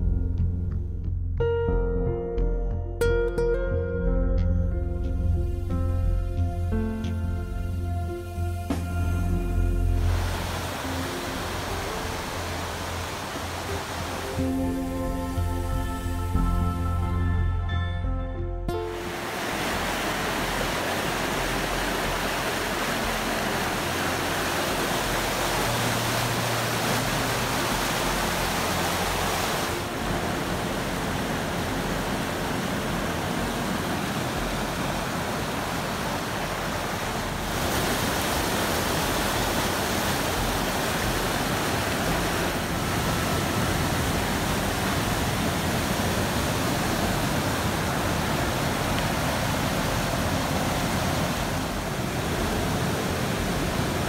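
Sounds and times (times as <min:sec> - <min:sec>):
creek rushing over rapids: 0:08.7 - 0:16.4, 0:18.7 - 0:54.0.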